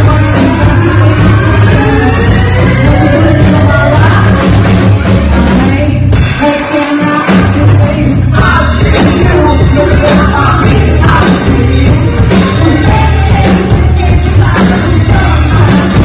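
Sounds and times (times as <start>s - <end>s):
women singing: 0.0s - 4.7s, 10.0s - 16.0s
drum kit: 0.0s - 16.0s
electric bass guitar: 0.0s - 16.0s
guitar: 0.0s - 16.0s.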